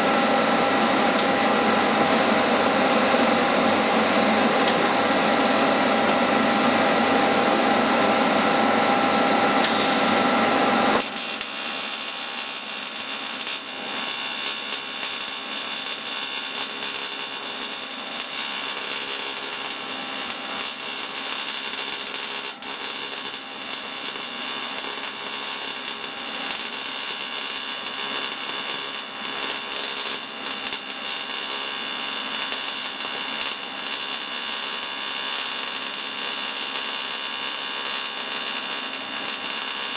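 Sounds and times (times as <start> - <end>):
welding arc crackling hiss: 9.7 - 39.9.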